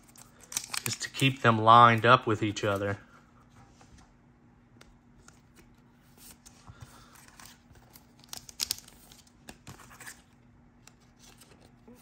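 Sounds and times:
cards and plastic sleeves rustling: 0.0 - 4.1, 4.9 - 12.0.

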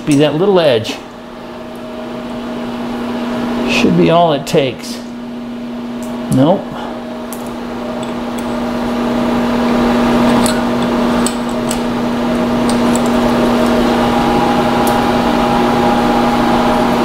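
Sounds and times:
electric motor hum: 5.0 - 17.0.

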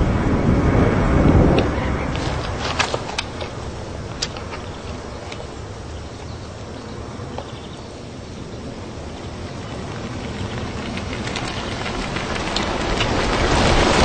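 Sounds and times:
jet engine rumble and hiss: 0.0 - 14.0.

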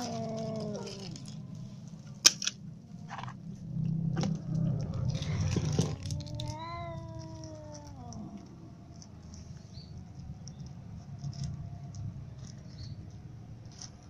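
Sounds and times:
cats crunching dry kibble: 0.0 - 14.0
cat meowing: 4.9 - 8.6.

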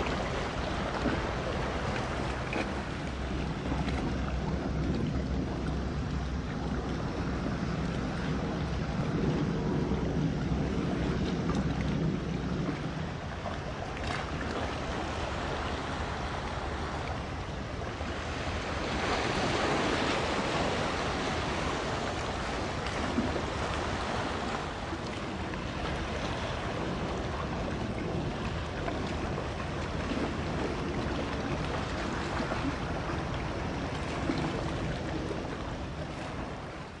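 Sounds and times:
low engine drone: 0.0 - 19.0
waves washing along shore: 0.0 - 37.0
wind on microphone: 0.0 - 37.0.

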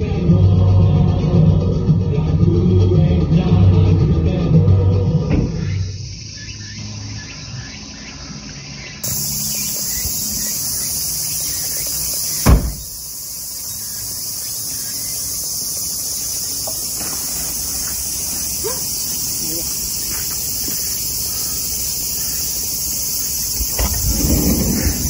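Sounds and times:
high-pitched insect chorus: 5.0 - 25.0
loud thump: 5.3 - 5.7, 12.4 - 13.0, 23.7 - 25.0.

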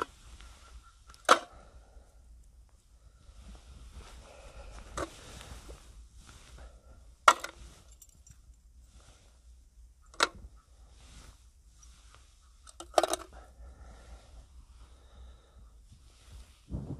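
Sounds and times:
faint rustling: 0.0 - 9.8, 10.4 - 16.9.

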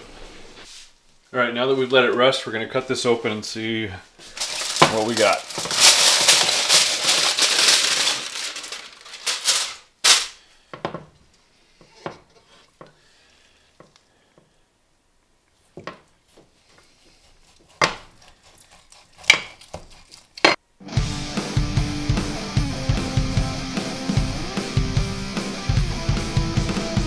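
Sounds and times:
aluminium foil crinkling: 4.2 - 10.4.

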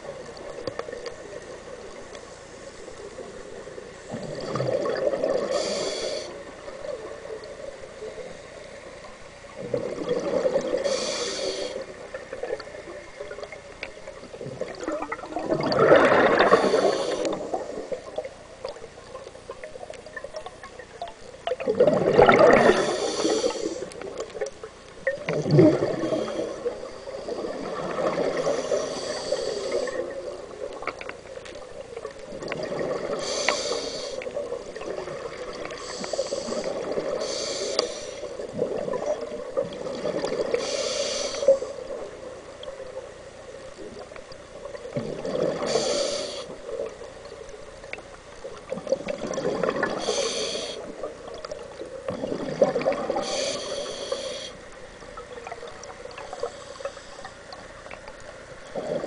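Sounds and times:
gurgle of exhaled bubbles: 4.1 - 5.9, 9.6 - 13.5, 14.2 - 18.8, 19.5 - 33.5, 34.3 - 37.3, 38.3 - 40.7, 43.8 - 47.0, 47.9 - 53.9, 58.7 - 59.0
regulator inhale hiss: 5.3 - 6.7, 10.7 - 12.2, 16.4 - 18.0, 22.6 - 24.2, 25.9 - 27.7, 28.3 - 30.2, 33.1 - 34.5, 35.6 - 38.4, 40.4 - 42.0, 45.6 - 47.0, 49.9 - 51.6, 53.1 - 54.8, 56.1 - 57.9.

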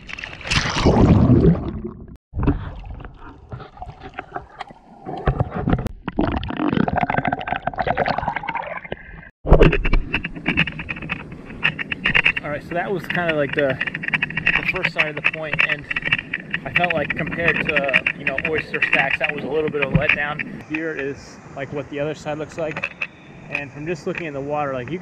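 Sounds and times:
water sloshing and gurgling: 0.0 - 21.9
muffled underwater bubbling: 0.5 - 9.7.

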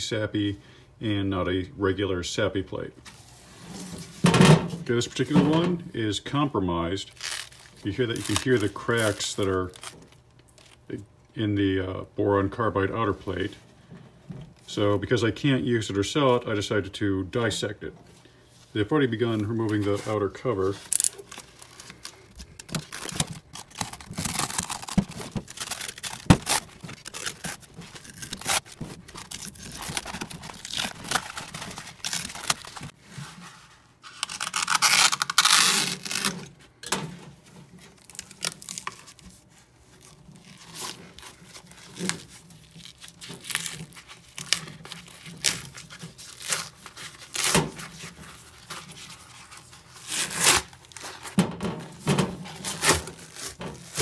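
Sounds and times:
fabric ripping: 7.1 - 10.0, 22.7 - 32.9, 34.0 - 36.4, 50.0 - 51.0.

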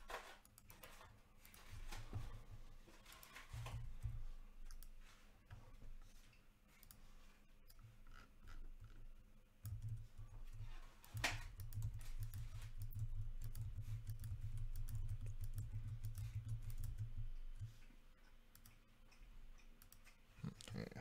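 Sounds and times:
keyboard typing: 9.6 - 17.8.

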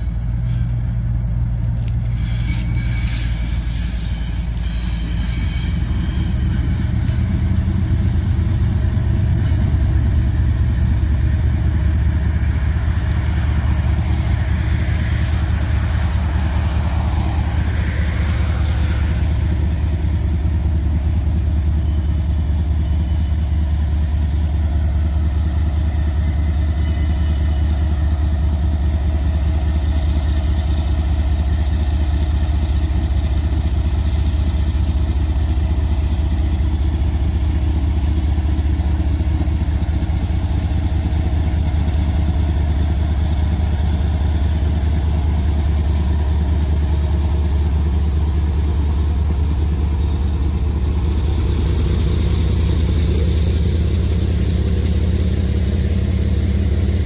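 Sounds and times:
locomotive engine rumble: 0.0 - 57.0
pickup truck passing: 11.7 - 20.9.

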